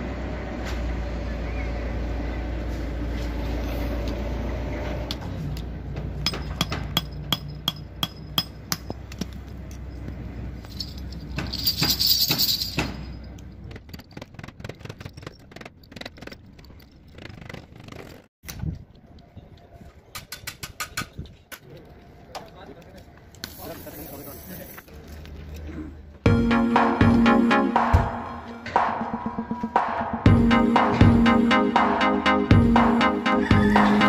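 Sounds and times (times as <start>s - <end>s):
small metal bells jingling: 9.7s - 13.4s.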